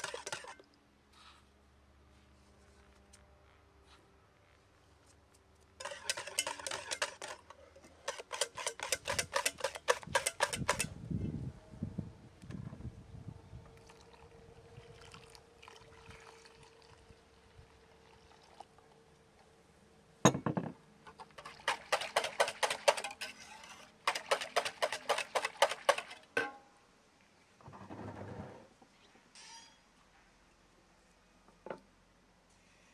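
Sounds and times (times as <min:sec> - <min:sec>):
wire whisk beating batter in bowl: 0:00.0 - 0:00.6, 0:05.8 - 0:10.9, 0:21.4 - 0:26.2
milk trickling from jug: 0:13.8 - 0:18.9.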